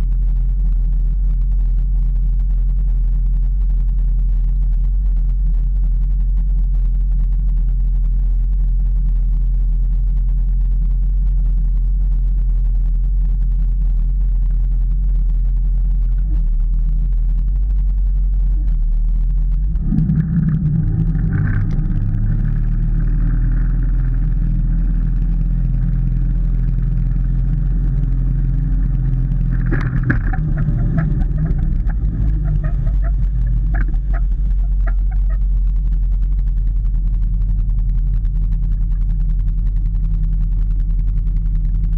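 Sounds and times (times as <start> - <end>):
wind on microphone: 19.4 - 36.0
boat engine revving: 19.7 - 35.4.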